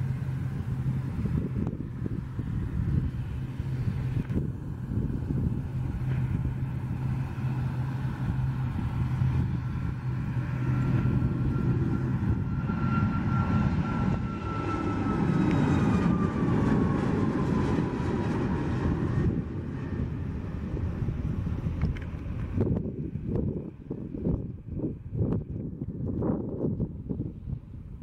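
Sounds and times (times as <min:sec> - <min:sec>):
jet engines at takeoff thrust: 0:00.0 - 0:28.0.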